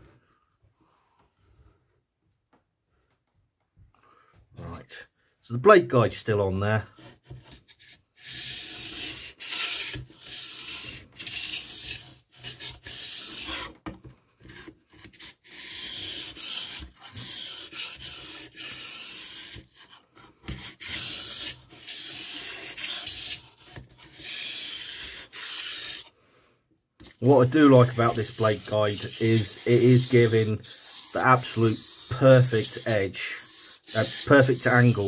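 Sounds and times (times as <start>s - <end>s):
knife scraping on whetstone: 7.0s - 13.8s, 14.4s - 26.1s, 27.0s - 35.0s.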